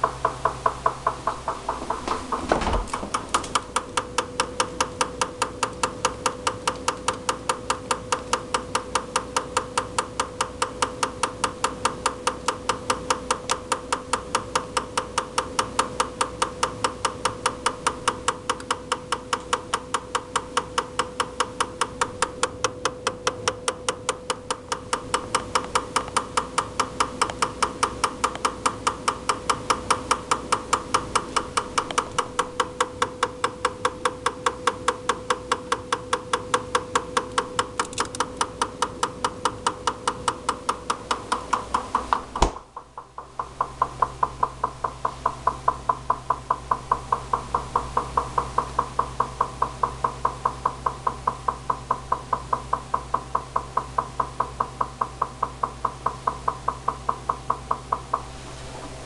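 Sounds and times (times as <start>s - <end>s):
refrigerator knocking: 0.0s - 5.2s, 41.5s - 58.2s.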